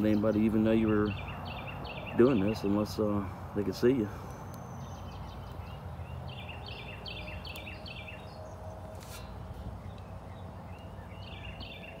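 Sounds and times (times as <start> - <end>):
songbird chirping: 0.0 - 12.0.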